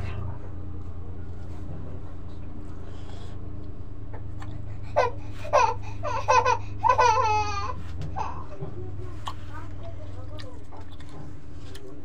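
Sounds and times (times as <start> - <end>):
steady low hum: 0.0 - 12.0
baby crying: 4.8 - 8.6.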